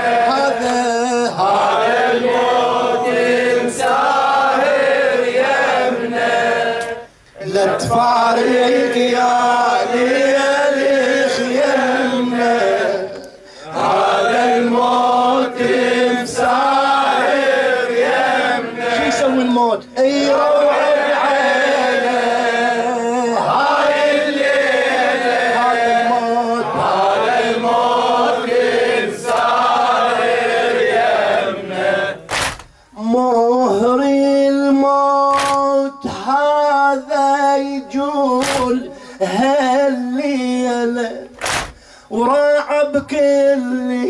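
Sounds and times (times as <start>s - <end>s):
man singing alone: 0.0s - 1.6s, 7.4s - 13.3s, 33.0s - 41.4s, 42.1s - 44.0s
men chanting in chorus: 0.0s - 44.0s
chest-beating slaps: 32.3s - 32.8s, 35.3s - 35.7s, 38.4s - 38.8s, 41.4s - 41.8s.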